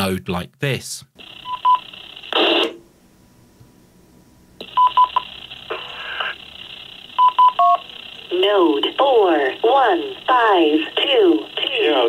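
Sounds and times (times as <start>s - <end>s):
faint radio hiss: 2.0s - 12.0s
rush of radio static: 2.1s - 2.8s, 4.6s - 12.0s
short tone beeps: 4.7s - 5.2s, 7.2s - 7.8s.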